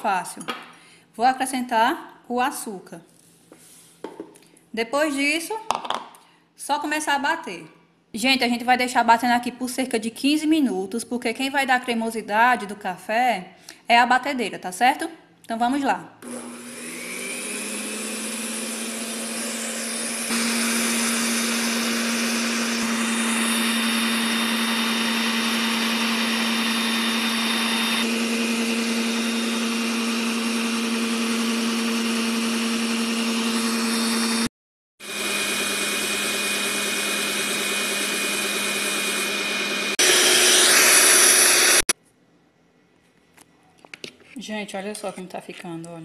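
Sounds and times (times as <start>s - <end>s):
electric mixer motor whirring: 16.2s - 41.9s.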